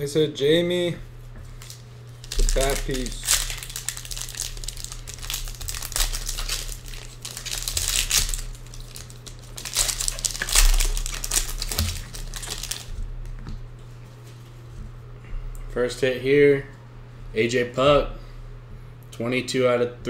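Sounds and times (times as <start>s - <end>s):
foil wrappers crinkling and tearing: 1.6s - 13.0s.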